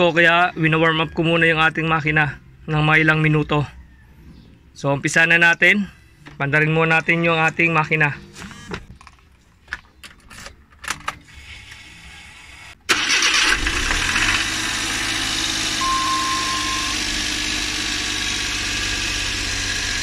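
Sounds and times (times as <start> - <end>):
engine starter cranking: 12.8 - 17.3
car engine idling: 12.9 - 20.0
short high tone: 15.8 - 17.2.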